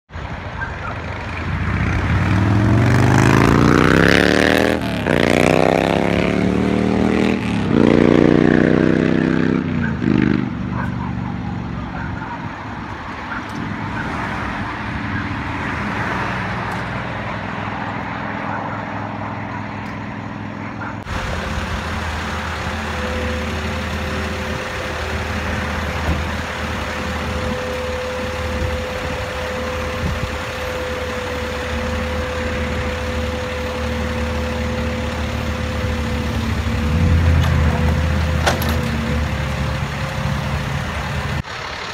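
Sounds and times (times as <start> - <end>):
diesel engine revving: 0.1 - 41.9
steady whine over engine: 9.6 - 41.9.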